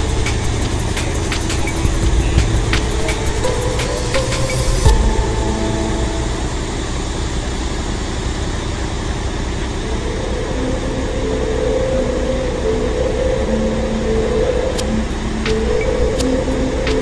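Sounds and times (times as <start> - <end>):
held tones stepping in pitch: 9.8 - 17.0.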